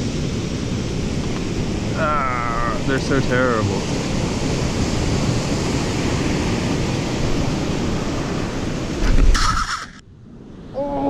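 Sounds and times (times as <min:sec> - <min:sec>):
wind buffeting microphone: 0:00.0 - 0:09.6
surf rushing: 0:00.0 - 0:10.0
loud brief rustling burst: 0:09.0 - 0:10.0.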